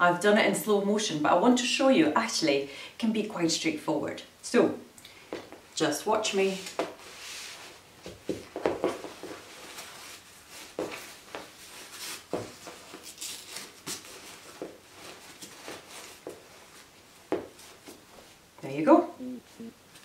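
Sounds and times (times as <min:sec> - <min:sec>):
fabric rustling: 0:06.4 - 0:18.6.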